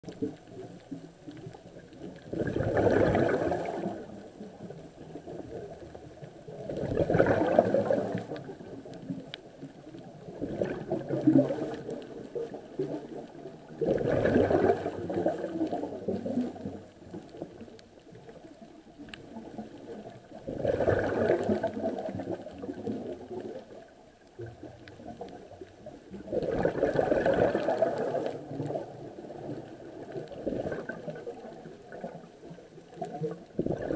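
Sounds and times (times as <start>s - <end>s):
underwater bubbles gurgling: 0.0s - 33.9s.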